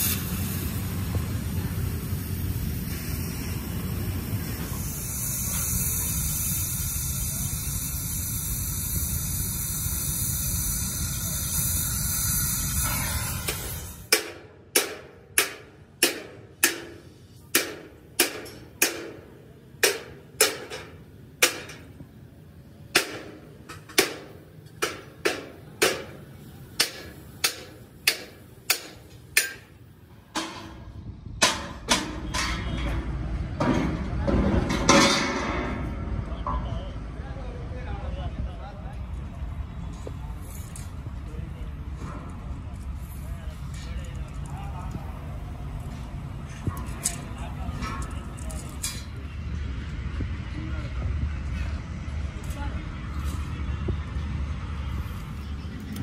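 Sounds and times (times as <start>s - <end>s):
hammer striking metal: 12.8s - 21.9s, 22.9s - 26.2s, 26.8s - 30.8s, 31.4s - 33.0s.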